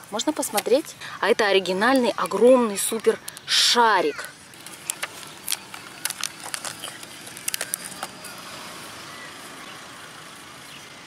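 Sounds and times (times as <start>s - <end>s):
steady background hiss: 0.0s - 11.0s
plastic packaging crinkling: 4.5s - 8.4s.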